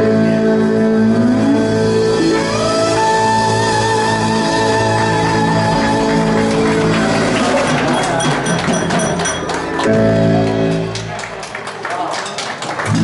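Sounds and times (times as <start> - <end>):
live band playing rock ballad: 0.0 - 11.1
drum and cymbal hits: 7.4 - 9.8.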